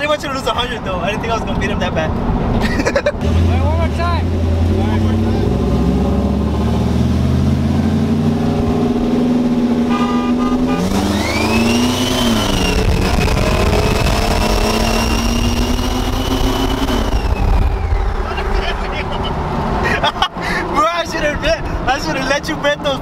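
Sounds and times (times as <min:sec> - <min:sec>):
pickup trucks accelerating: 0:00.0 - 0:23.0
high whine: 0:08.9 - 0:19.4.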